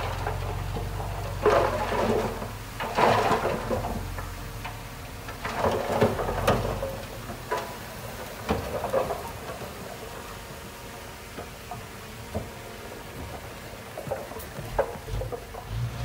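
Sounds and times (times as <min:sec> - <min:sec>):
soil and rocks tumbling: 0:00.0 - 0:16.0
truck engine hum: 0:00.0 - 0:16.0.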